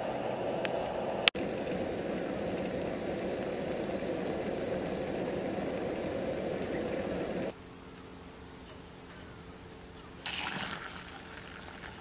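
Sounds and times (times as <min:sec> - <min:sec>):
water boiling in a pot: 0:00.6 - 0:07.6, 0:10.2 - 0:12.0.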